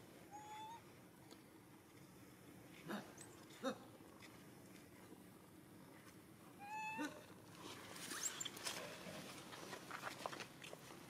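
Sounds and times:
monkey high call: 0.3s - 0.8s, 6.6s - 7.3s
faint high squeaks: 8.0s - 8.6s.

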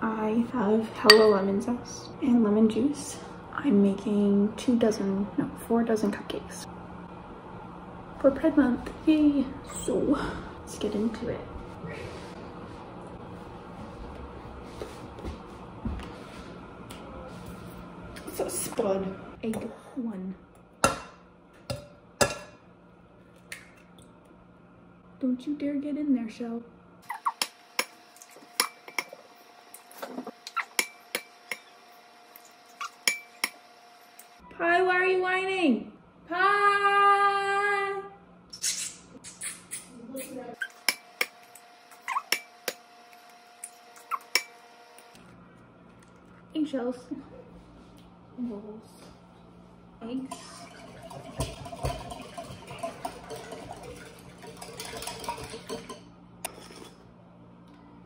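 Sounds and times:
whisk scraping glass jug: 50.3s - 57.0s.

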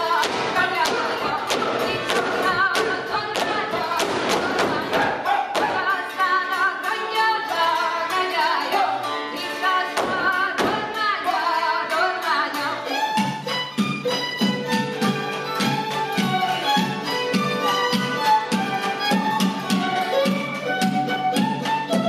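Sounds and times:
folk dance music with singing: 0.0s - 22.0s
sharp thumps: 0.1s - 5.9s, 10.0s - 11.0s.

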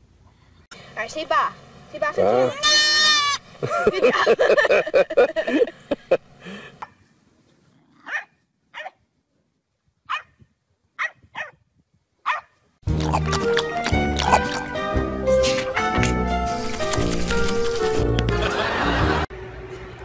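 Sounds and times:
dog barking and whining: 8.0s - 9.0s, 10.1s - 10.3s, 11.0s - 11.6s, 12.2s - 12.6s.

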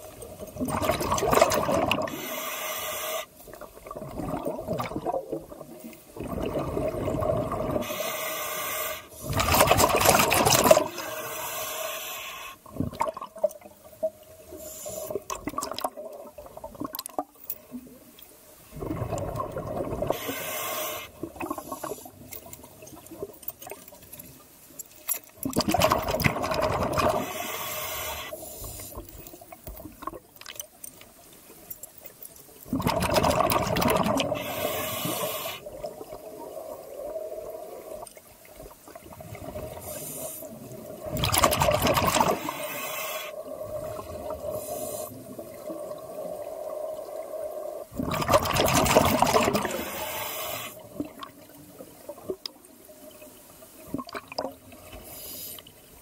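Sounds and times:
exhaled bubbles rushing: 0.6s - 2.2s, 3.7s - 7.8s, 9.2s - 11.0s, 18.7s - 20.2s, 25.4s - 27.3s, 32.7s - 34.5s, 40.7s - 42.5s, 47.9s - 49.8s
breathing hiss: 2.0s - 3.4s, 7.8s - 9.4s, 10.9s - 12.7s, 14.5s - 15.3s, 20.1s - 22.4s, 27.1s - 29.2s, 34.3s - 35.8s, 39.7s - 40.7s, 42.3s - 45.4s, 49.6s - 51.0s, 54.9s - 55.9s.

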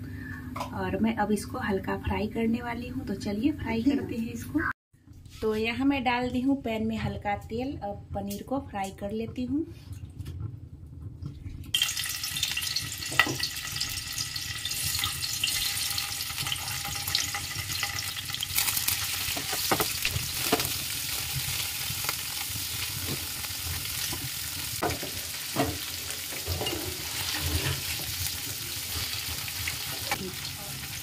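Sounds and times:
cheese sizzling in hot oil: 11.8s - 31.0s
metal spatula knocking and scraping: 24.8s - 28.1s.

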